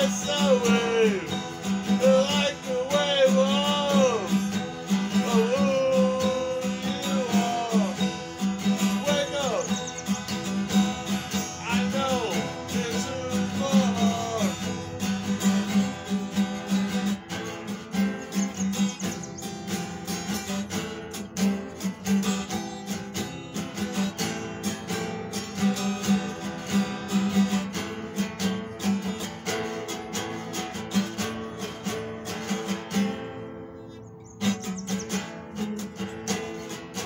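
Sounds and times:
man singing: 0.0 - 16.4
acoustic guitar strumming: 0.0 - 37.0.

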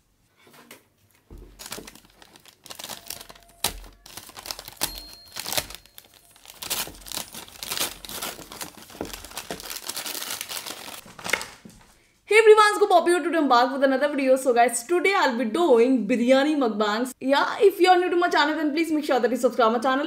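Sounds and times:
paper bag crinkling: 1.3 - 12.0.

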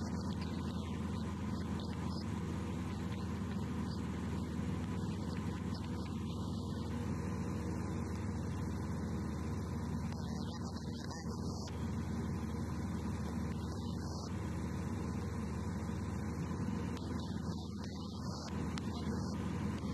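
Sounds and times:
propeller aircraft engine droning: 0.0 - 19.9.

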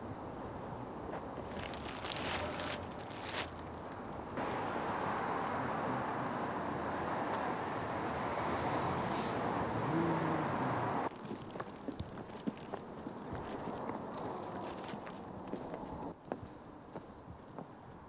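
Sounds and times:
road traffic hiss: 0.0 - 17.2
rustling: 1.4 - 3.7.

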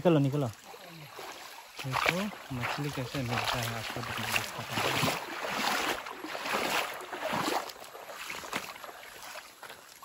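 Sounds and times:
stream running over stones: 0.0 - 10.0.

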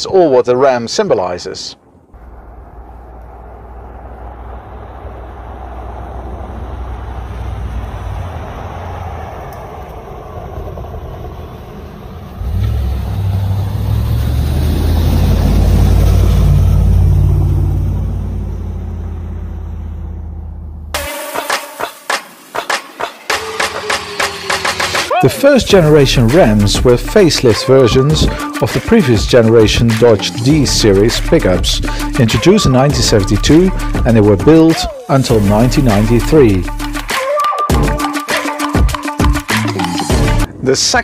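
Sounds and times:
truck engine rumble: 1.8 - 21.0, 23.7 - 28.6, 29.2 - 37.1.

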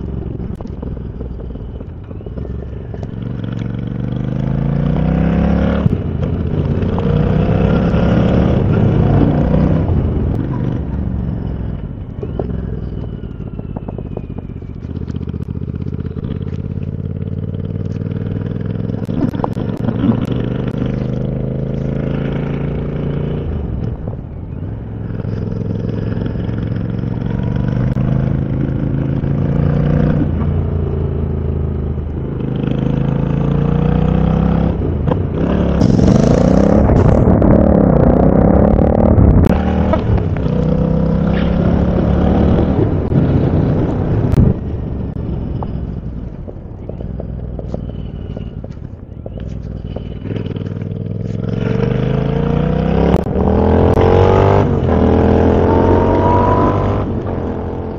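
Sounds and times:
motorcycle engine revving: 0.0 - 57.9.

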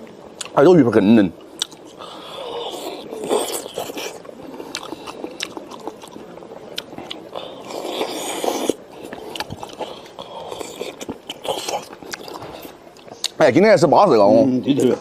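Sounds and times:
chewing and mouth sounds: 0.1 - 0.6, 1.4 - 13.4.

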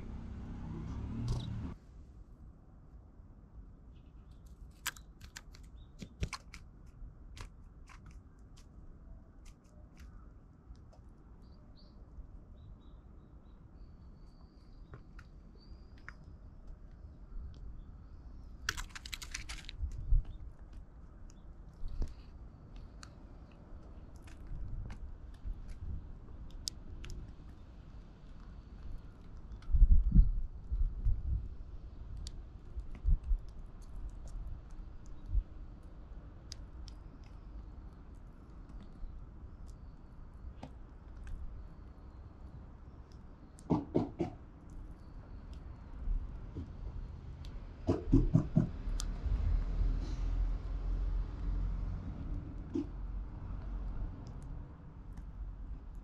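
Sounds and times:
low outdoor rumble: 0.0 - 2.6
bird pecking and cracking seeds: 4.2 - 11.2, 18.4 - 29.8, 32.0 - 43.7.

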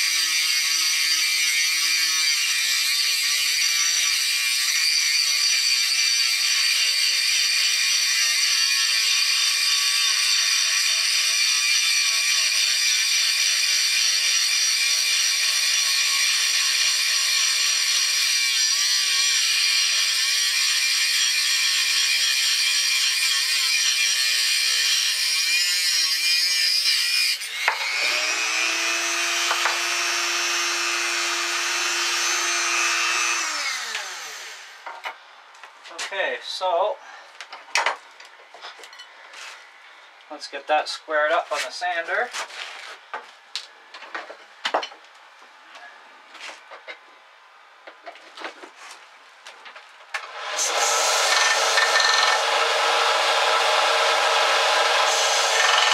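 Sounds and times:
rotary tool grinding steel: 0.0 - 34.8, 50.2 - 55.9.

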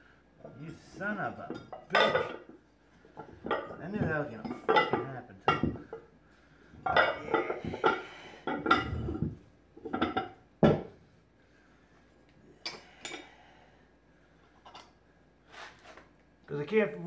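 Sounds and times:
metal weight plates clanking: 6.8 - 9.2.

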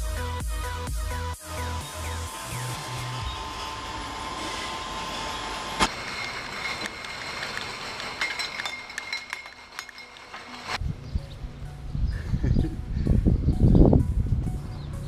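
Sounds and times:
conveyor machinery rattle and hum: 1.4 - 10.8
glass bottles clinking: 5.9 - 10.8.

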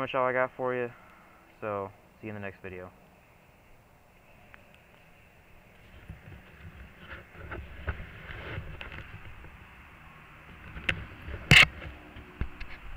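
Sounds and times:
camera handling rustling: 10.6 - 12.8.

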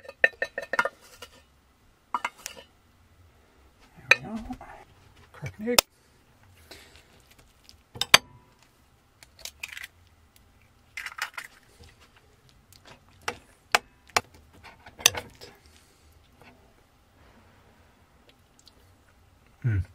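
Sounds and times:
egg cracking: 6.8 - 15.4.

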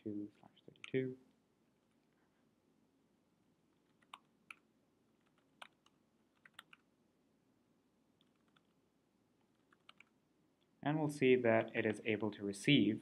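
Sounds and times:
computer keyboard keystrokes: 5.2 - 6.8, 8.2 - 8.7, 9.6 - 10.1.

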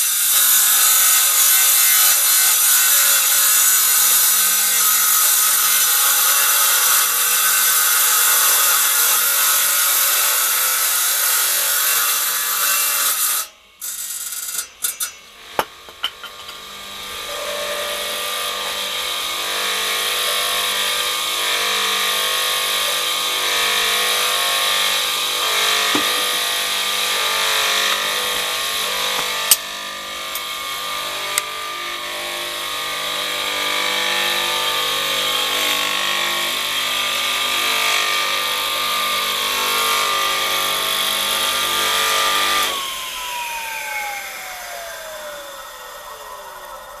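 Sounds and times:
table saw whining: 0.0 - 47.0.

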